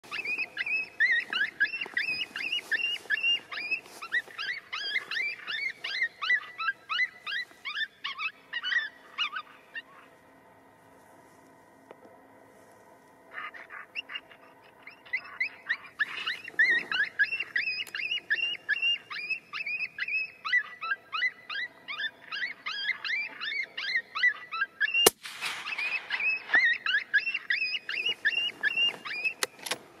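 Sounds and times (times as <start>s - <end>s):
high-pitched yelping distress cries: 0.2s - 9.6s, 13.3s - 25.0s
rifle shot: 25.1s - 26.8s.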